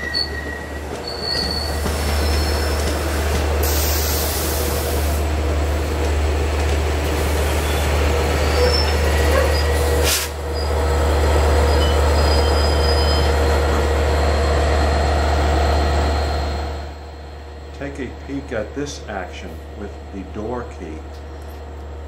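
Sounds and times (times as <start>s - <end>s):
wheel squeals: 0.0s - 3.0s, 7.5s - 10.8s, 11.4s - 13.5s
diesel locomotive: 0.0s - 22.0s
train wheels rumbling on rail: 0.0s - 22.0s.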